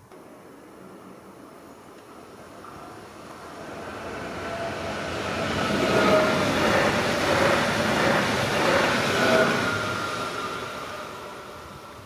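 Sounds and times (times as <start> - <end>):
train wheels rumbling on rails: 2.1 - 12.0.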